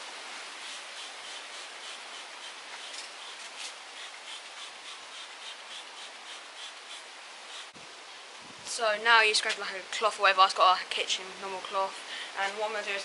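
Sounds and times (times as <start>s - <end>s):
hand scrubbing painted metal: 0.5s - 7.8s.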